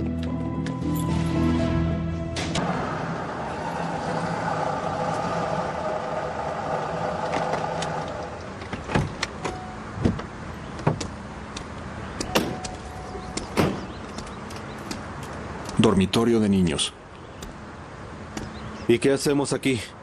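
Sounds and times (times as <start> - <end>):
car rolling on brick paving: 2.6 - 9.4
car doors opening and shutting: 6.8 - 15.8.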